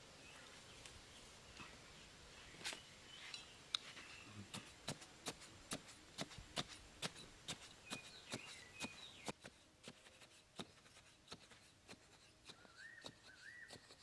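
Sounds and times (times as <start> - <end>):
blade jabbing into sandy soil: 3.8 - 14.0.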